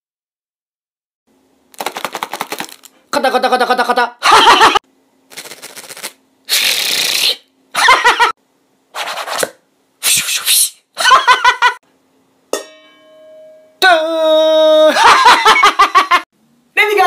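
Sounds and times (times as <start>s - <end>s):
man making mouth noises and yells: 10.0s - 10.8s.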